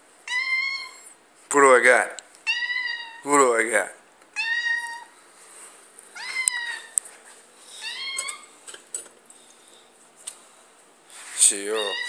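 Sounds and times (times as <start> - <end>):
cat meowing: 0.2 - 1.1, 2.4 - 3.3, 4.4 - 5.1, 6.2 - 7.0, 7.8 - 8.5, 11.7 - 12.0.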